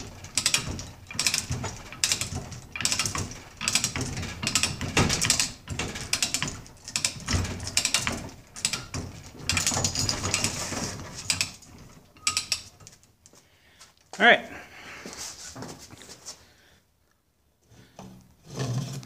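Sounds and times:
chain hoist ratchet clicking: 0.0 - 12.9
chain rattling: 0.0 - 13.1.

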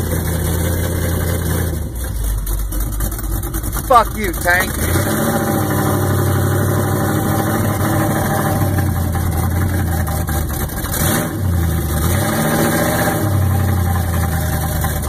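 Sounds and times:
truck engine idling: 3.2 - 4.9.

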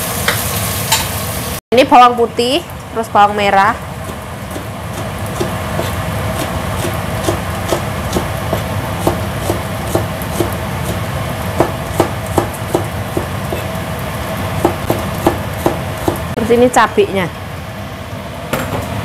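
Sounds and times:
low background hum: 0.6 - 19.0
knife chopping on cutting board: 4.1 - 11.0, 11.6 - 13.7, 14.6 - 16.3.

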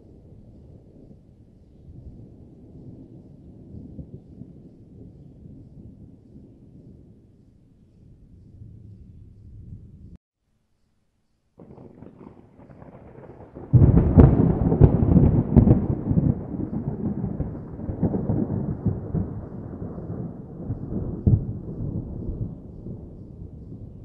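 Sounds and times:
thunder clap and rumble: 11.6 - 24.0.

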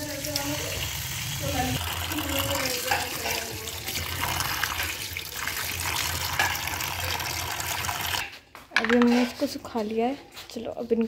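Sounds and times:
tap water running into colander: 0.0 - 8.3.

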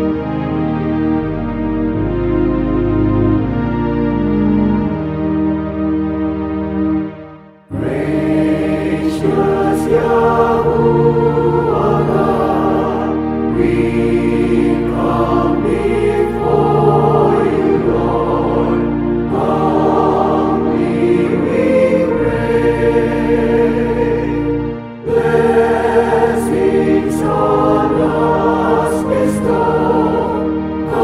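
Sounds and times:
instrumental accompaniment: 0.0 - 31.0
choir singing a hymn: 7.7 - 31.0.

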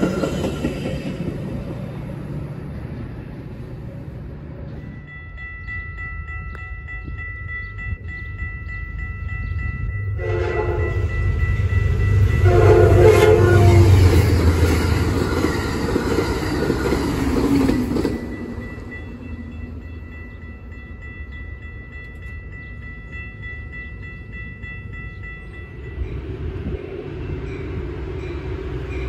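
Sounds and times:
train rushing past: 0.0 - 5.7, 9.5 - 21.2, 23.1 - 29.0
crossing warning bell ringing: 3.9 - 29.0
train horn blasts: 10.2 - 11.4, 12.1 - 14.3.

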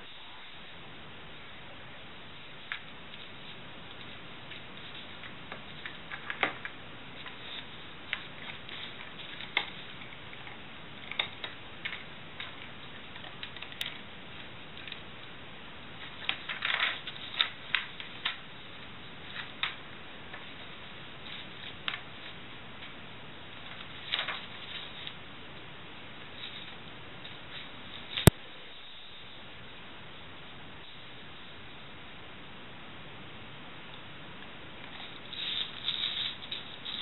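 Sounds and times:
magazine pages crinkling: 16.0 - 18.5, 23.6 - 25.2.

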